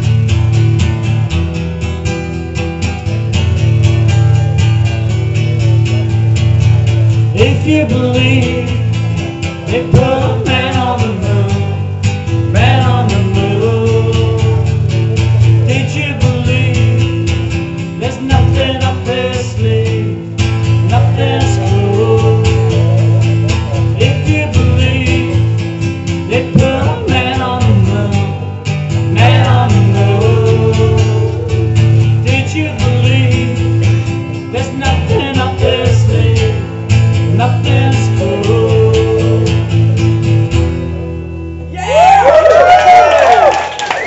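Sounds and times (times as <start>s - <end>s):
acoustic guitar strumming: 0.0s - 41.8s
man singing wordlessly: 7.3s - 40.0s.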